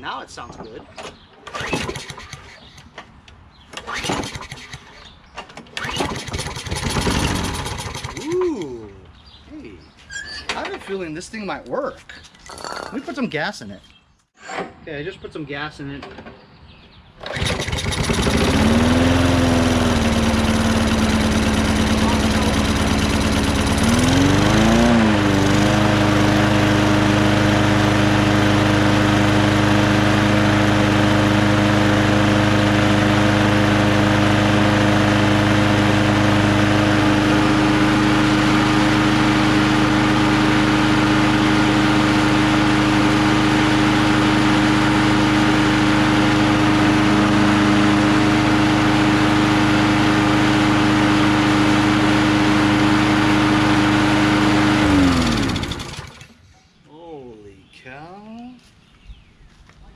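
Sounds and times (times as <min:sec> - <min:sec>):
lawn mower engine running: 0:01.4 - 0:02.9, 0:03.7 - 0:09.0, 0:17.2 - 0:56.4
engine shutting off: 0:05.8 - 0:08.9, 0:17.2 - 0:56.4.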